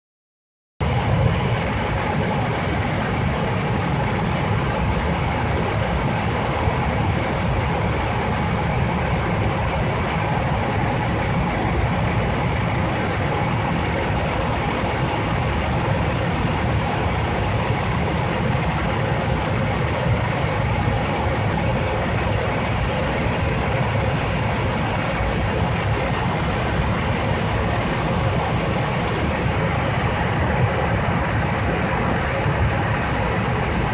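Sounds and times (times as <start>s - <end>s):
airliner cabin engine roar: 0.8s - 33.9s.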